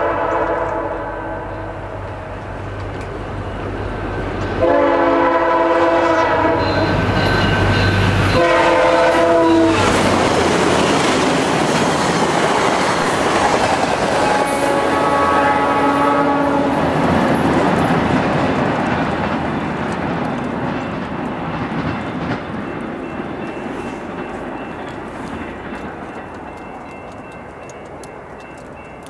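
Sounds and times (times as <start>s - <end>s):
train horn blasts: 0.0s - 2.0s, 4.6s - 10.3s, 14.1s - 17.1s
train wheels clattering on rails: 2.0s - 29.0s.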